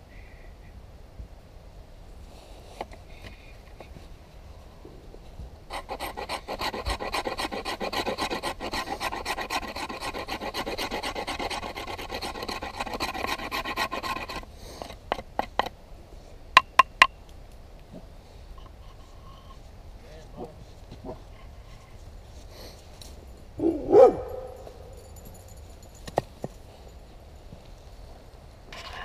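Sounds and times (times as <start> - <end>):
knife blade rasping: 5.7 - 15.6.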